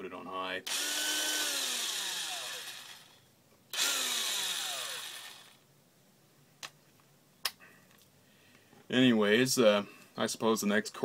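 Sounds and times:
cordless drill whine: 0.7s - 5.6s.

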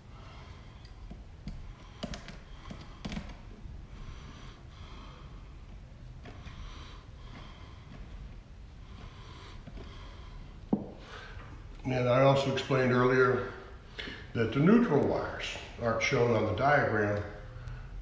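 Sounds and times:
soft breathing: 0.0s - 11.8s, 13.2s - 14.4s, 17.4s - 18.0s
wires being twisted by hand: 0.6s - 4.7s, 5.4s - 11.9s.

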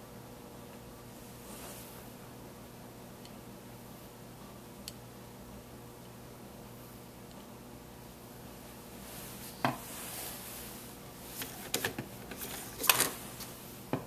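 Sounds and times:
faint room hiss: 0.0s - 14.0s.

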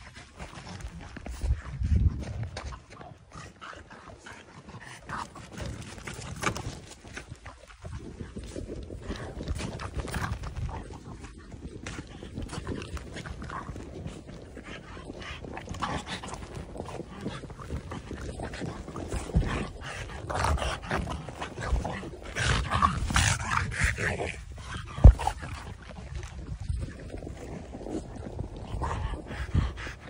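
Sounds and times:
dog vocal noises: 0.0s - 30.0s
dog chasing plastic ball: 4.5s - 27.6s.

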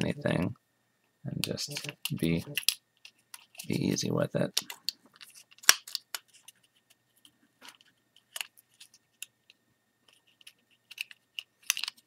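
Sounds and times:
small plastic clicks: 10.1s - 12.0s.

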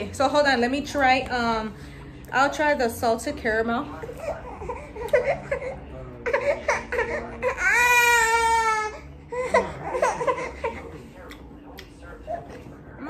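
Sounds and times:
baby crying: 4.2s - 10.8s.

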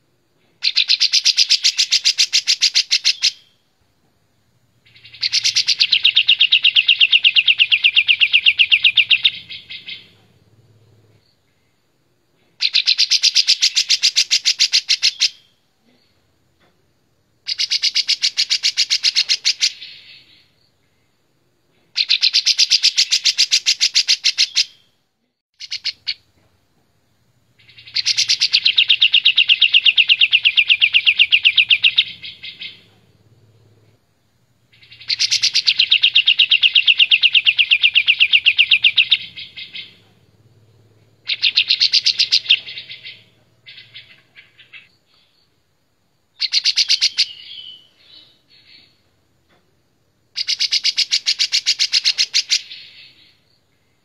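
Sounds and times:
bulbul singing rapid repeated notes: 4.8s - 10.1s, 27.6s - 32.9s, 34.7s - 40.0s, 41.2s - 44.2s.

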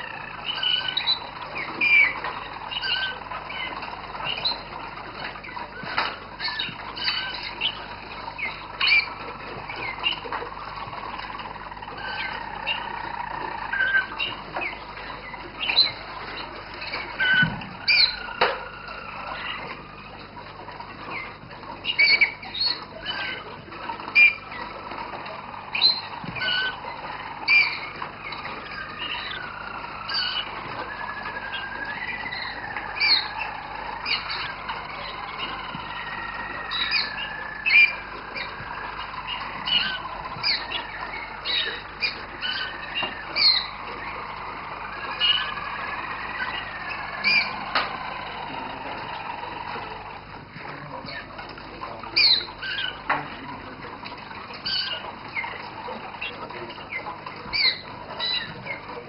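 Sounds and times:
canaries singing rolled notes: 0.0s - 59.0s.

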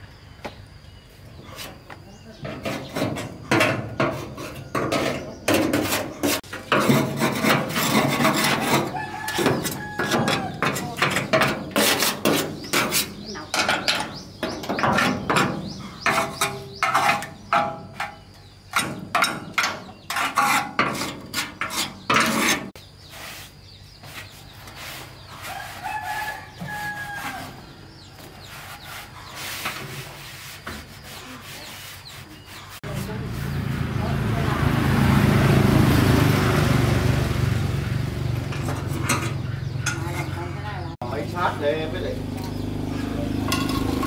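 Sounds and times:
hand tool scraping and knocking: 1.4s - 23.4s, 24.0s - 33.2s, 38.5s - 41.0s, 43.4s - 44.0s
rooster crowing: 8.8s - 11.0s, 25.5s - 27.7s
chickens clucking: 37.6s - 41.5s.

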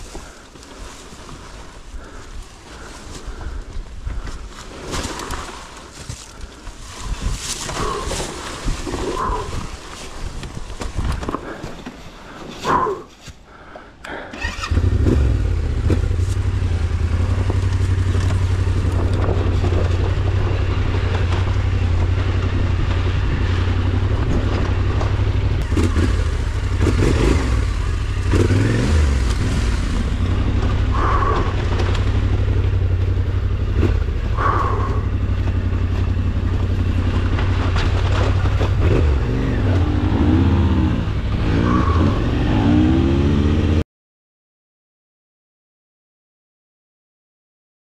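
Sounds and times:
motorcycle engine running: 14.4s - 43.8s.

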